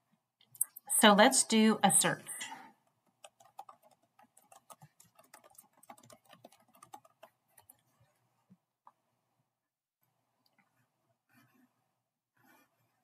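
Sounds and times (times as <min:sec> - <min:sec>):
typing on computer keyboard: 0:02.8 - 0:07.8.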